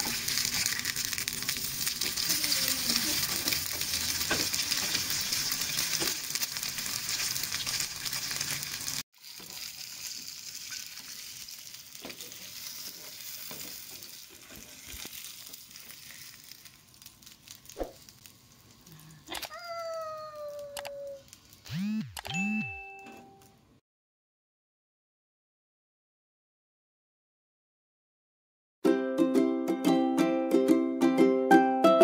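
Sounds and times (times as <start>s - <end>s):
egg sizzling in frying pan: 0.0s - 18.9s.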